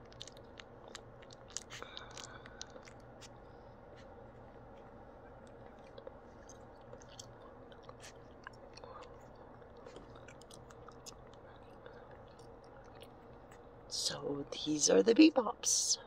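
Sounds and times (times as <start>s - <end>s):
puppies suckling wet clicks: 0.0s - 3.4s, 5.4s - 13.7s
steady low hum: 0.0s - 16.0s.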